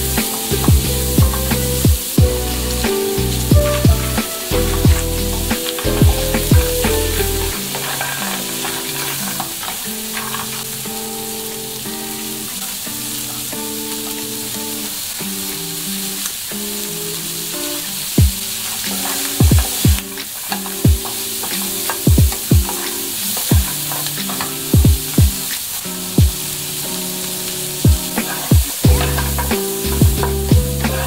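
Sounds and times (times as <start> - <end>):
wooden spatula scraping a wok: 0.0 - 11.0, 26.5 - 31.0
stir-fry sizzling in a wok: 0.0 - 31.0.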